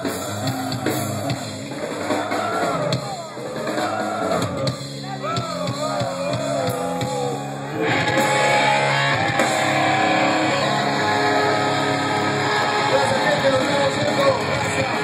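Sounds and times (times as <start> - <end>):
distorted guitars: 0.0 - 15.0
heavy metal band playing live: 0.0 - 15.0
guitar melody: 6.7 - 15.0.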